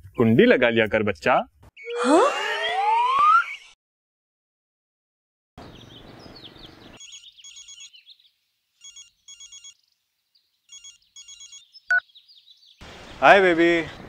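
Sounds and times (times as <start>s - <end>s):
faint outdoor ambience: 5.6s - 14.0s
phone ringtone beeping: 7.0s - 8.0s, 8.8s - 9.8s, 10.7s - 12.0s
small chirps: 7.0s - 8.2s, 8.8s - 9.8s, 10.7s - 12.2s.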